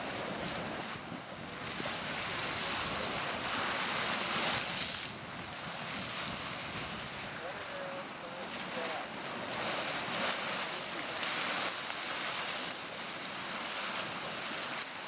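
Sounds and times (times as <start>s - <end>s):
geyser steam rushing: 0.0s - 15.0s
water splashing: 1.6s - 15.0s.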